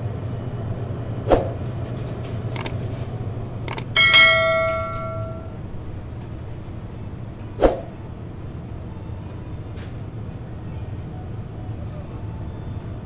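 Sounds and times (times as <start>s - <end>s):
steady low hum: 2.6s - 7.3s
bell-like metallic ring: 3.7s - 5.6s.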